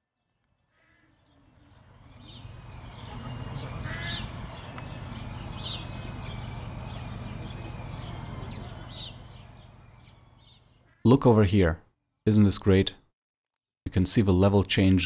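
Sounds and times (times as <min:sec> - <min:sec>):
birds chirping: 0:00.1 - 0:11.3
steady low rumble: 0:01.6 - 0:10.7.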